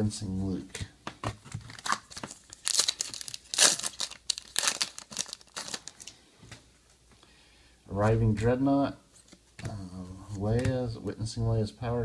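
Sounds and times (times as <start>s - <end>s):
plastic wrapper tearing and crinkling: 1.5s - 6.2s.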